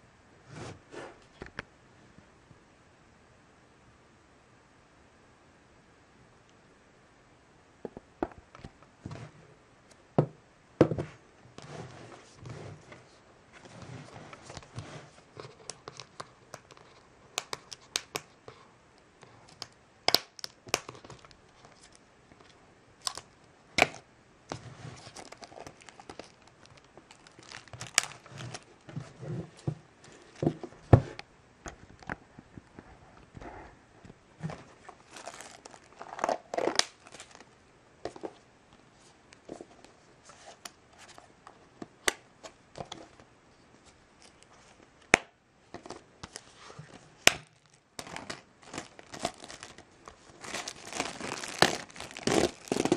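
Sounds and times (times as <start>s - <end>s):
plastic wrap crinkling: 25.0s - 28.9s, 34.6s - 38.4s, 45.8s - 52.9s.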